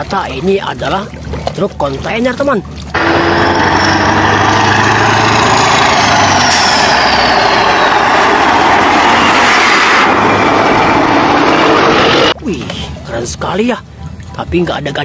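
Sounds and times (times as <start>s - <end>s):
diesel truck driving past: 3.0s - 12.4s.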